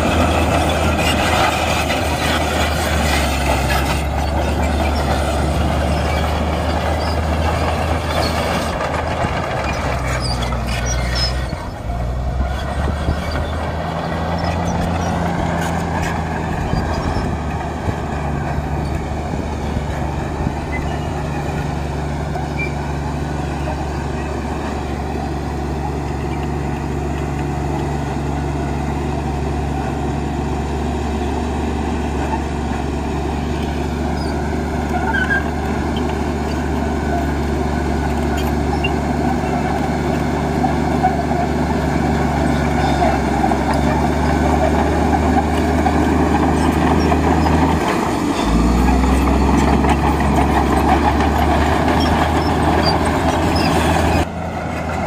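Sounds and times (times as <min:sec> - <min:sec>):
heavy diesel engines running: 0:00.0 - 0:55.0.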